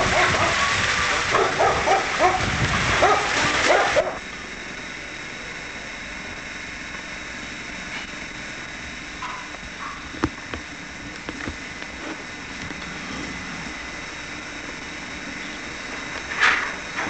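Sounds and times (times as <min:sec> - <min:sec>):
dog barking in high yips: 0:01.4 - 0:02.4, 0:03.0 - 0:04.2.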